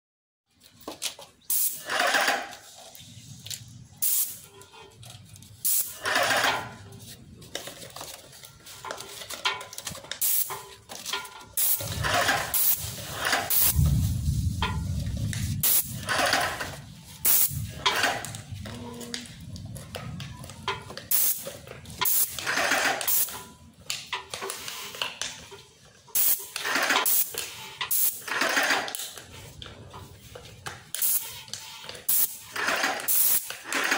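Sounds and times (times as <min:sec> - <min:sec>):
paint sprayer hissing in bursts: 0:01.5 - 0:02.2, 0:04.0 - 0:04.4, 0:05.6 - 0:06.4, 0:10.2 - 0:10.5, 0:11.6 - 0:13.9, 0:15.6 - 0:16.6, 0:17.2 - 0:17.6, 0:21.1 - 0:23.4, 0:26.2 - 0:28.4, 0:31.0 - 0:33.9
low rumble: 0:11.8 - 0:21.1.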